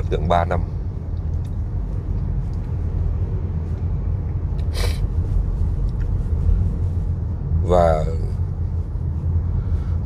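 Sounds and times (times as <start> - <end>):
low rumble: 0.0 - 10.0
breathy puff: 4.7 - 5.1.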